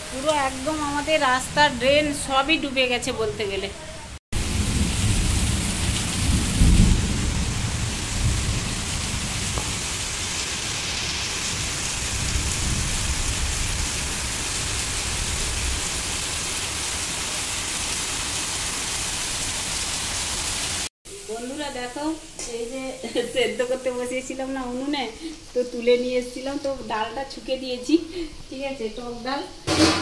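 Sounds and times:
heavy rain pouring: 0.0 - 3.3, 4.4 - 20.9
low rumble of thunder: 4.4 - 10.0, 11.6 - 15.8.

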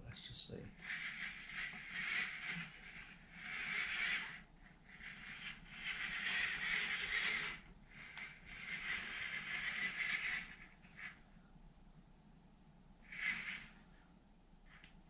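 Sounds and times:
small electric motors whirring: 0.6 - 11.2, 13.0 - 13.8.

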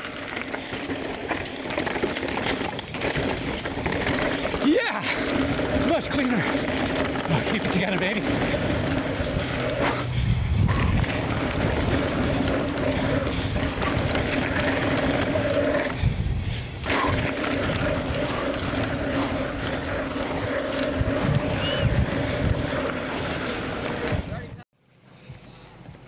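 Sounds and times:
bike tyre and chassis rattle: 0.0 - 26.0
wind on camera: 5.3 - 24.6.

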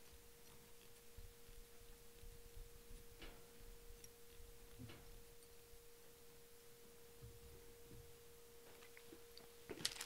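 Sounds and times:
faint steady tone: 0.0 - 9.8.

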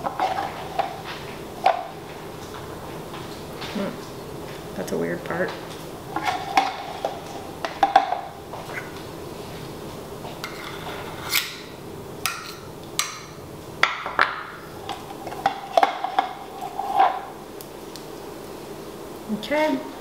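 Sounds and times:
spoon scraping metal cup: 10.4 - 11.6.

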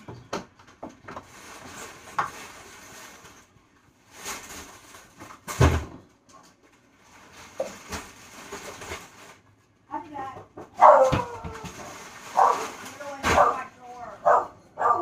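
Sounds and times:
bag rustling: 11.8 - 13.7.

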